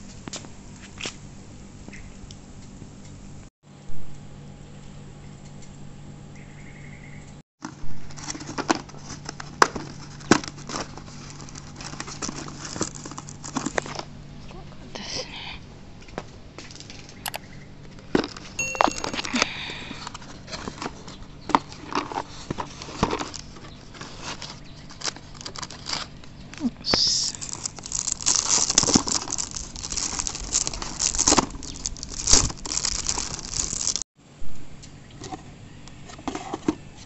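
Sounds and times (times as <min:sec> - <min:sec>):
plastic film crinkling: 0:08.1 - 0:14.1, 0:20.0 - 0:26.4, 0:27.2 - 0:34.0.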